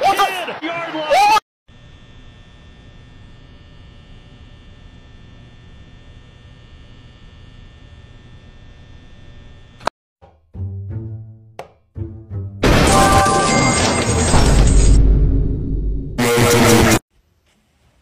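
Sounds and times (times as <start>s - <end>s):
electrical hum: 1.7s - 9.9s.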